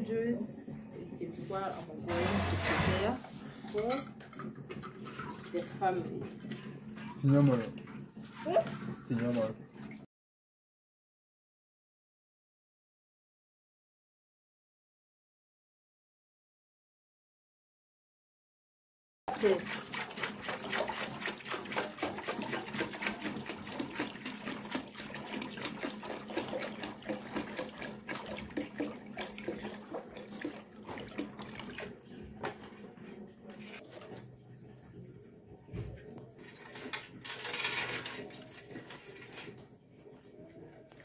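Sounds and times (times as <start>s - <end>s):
water pouring into metal basin: 4.4s - 10.0s, 19.3s - 32.0s, 36.1s - 39.6s.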